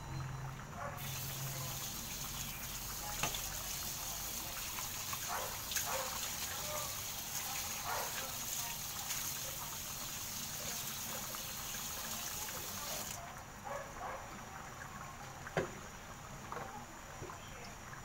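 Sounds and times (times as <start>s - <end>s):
tap water running into sink: 1.0s - 13.2s.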